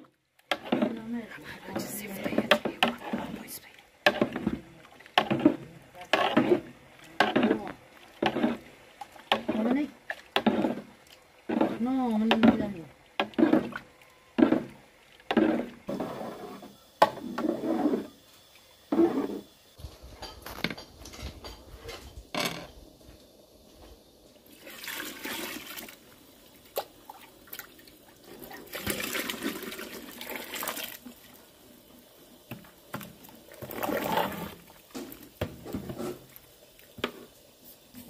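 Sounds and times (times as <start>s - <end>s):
liquid pouring into pot: 24.4s - 31.6s.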